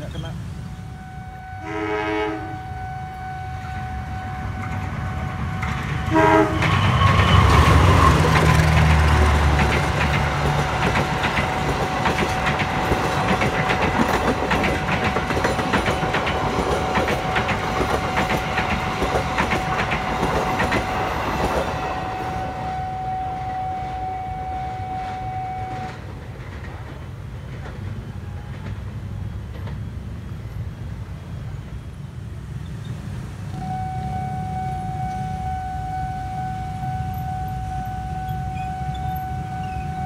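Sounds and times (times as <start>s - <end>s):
train passing: 0.0s - 40.0s
level crossing warning tone: 0.7s - 26.0s, 33.5s - 40.0s
wheels clacking on rail joints: 4.2s - 22.7s, 24.9s - 30.5s.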